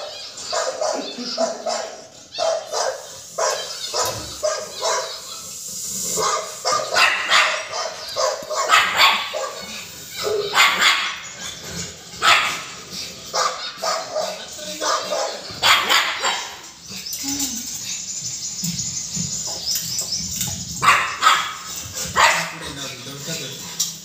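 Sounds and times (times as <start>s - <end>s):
dog barking: 0.0s - 5.5s, 6.1s - 16.8s, 20.8s - 22.9s.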